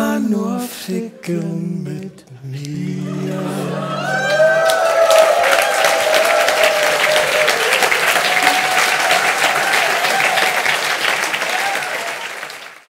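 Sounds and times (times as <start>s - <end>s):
audience applauding: 3.2s - 12.9s.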